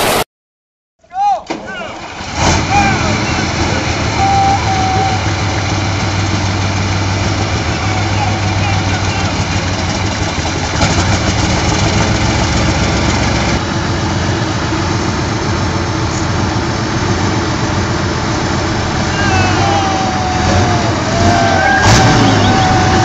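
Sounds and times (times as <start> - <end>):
diesel engine running: 1.7 - 23.0
wavering whistle-like tone: 19.0 - 23.0.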